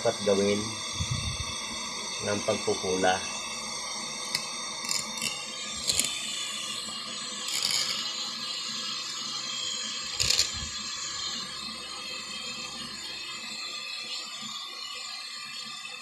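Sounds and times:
faint hum: 0.0 - 8.0.

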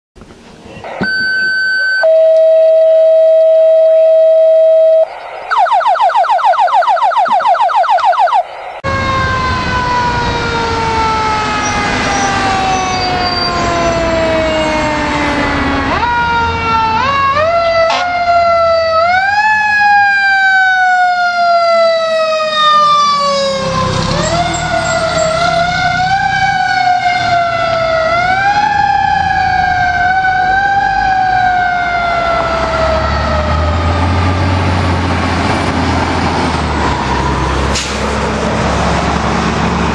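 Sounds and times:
radio dispatch alert tones: 0.7 - 9.4
truck engine rumble: 2.1 - 39.9.

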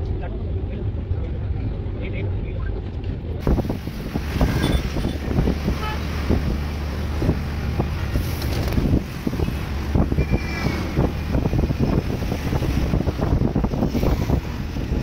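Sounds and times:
low rumble of road traffic: 0.0 - 15.0
wind buffeting microphone: 3.4 - 15.0.

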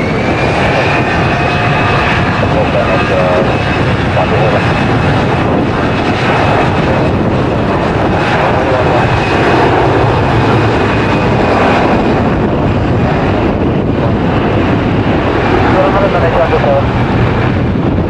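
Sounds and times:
jet engines roaring: 0.0 - 18.0.

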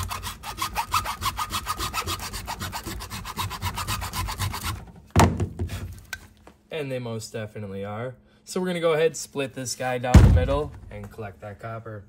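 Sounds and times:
metal file rasping on copper: 0.0 - 4.8
loud knock: 5.2 - 5.8, 10.2 - 10.8.

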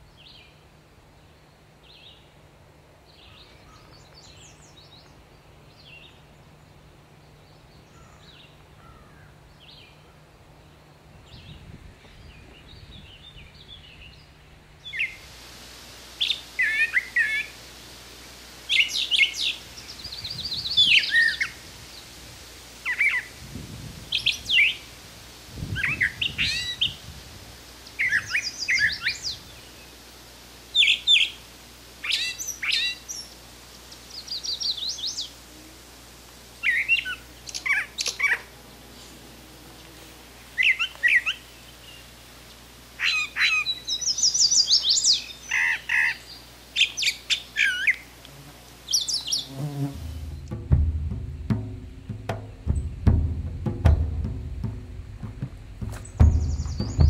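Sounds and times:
bird singing varied phrases: 12.3 - 15.2, 18.7 - 21.6, 27.9 - 29.9, 32.0 - 33.3, 43.0 - 48.1, 48.9 - 49.6, 56.0 - 57.0.

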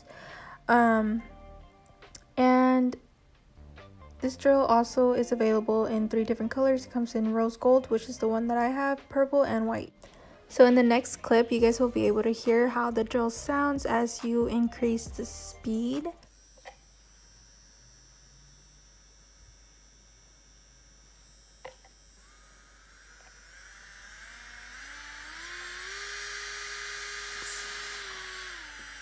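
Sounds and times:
nail drill motor whine: 16.2 - 29.0.

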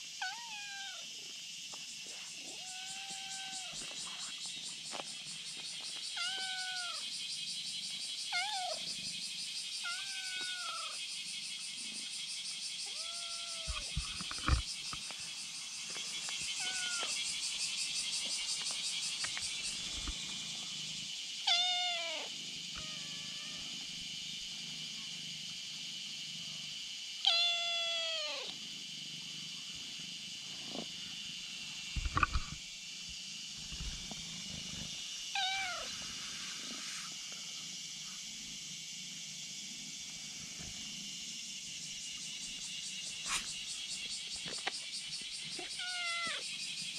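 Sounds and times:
cat meowing: 0.2 - 1.0, 6.2 - 7.0, 9.8 - 11.0, 12.9 - 13.9, 16.6 - 17.1, 21.5 - 23.6, 27.2 - 28.5, 35.4 - 35.9, 45.7 - 46.4.

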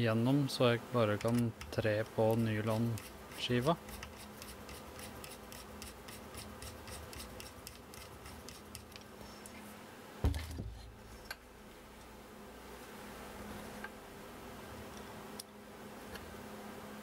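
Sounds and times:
thump on workbench: 10.2 - 10.8.

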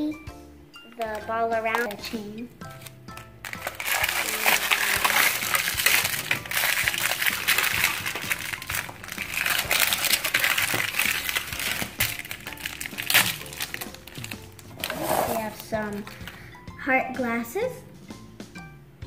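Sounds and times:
plastic wrapper crackling: 2.8 - 16.4.

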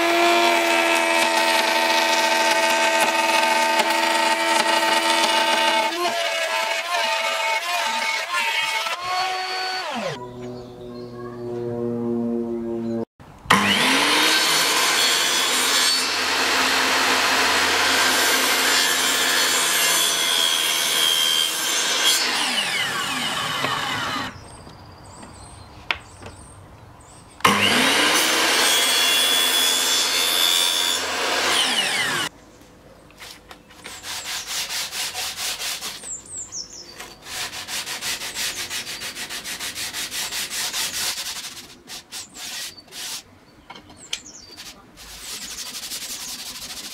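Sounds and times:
mitre saw cutting wood: 0.0 - 10.2, 13.5 - 24.4, 27.4 - 32.3, 33.8 - 36.2, 37.0 - 43.2
sandpaper sanding wood: 33.8 - 36.2, 37.0 - 43.3, 44.6 - 46.9.

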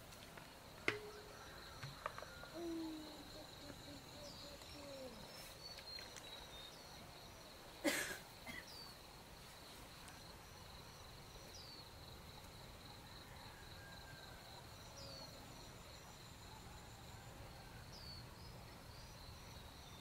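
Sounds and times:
faint high insect chirring: 0.0 - 20.0.

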